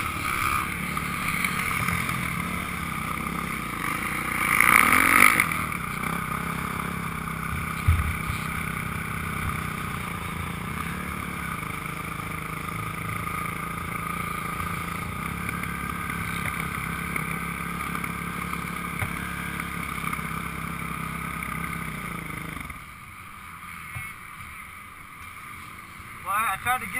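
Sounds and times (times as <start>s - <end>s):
off-road vehicle engine running: 0.0s - 26.9s
short thump: 7.8s - 8.5s.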